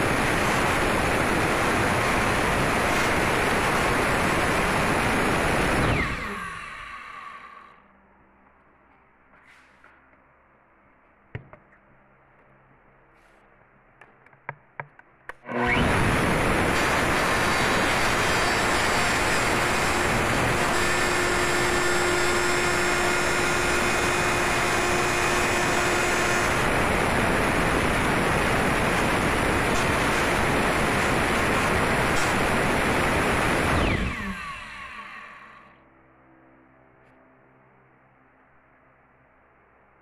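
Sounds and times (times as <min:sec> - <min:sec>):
electric router cutting metal: 0:00.0 - 0:07.6, 0:15.5 - 0:35.7.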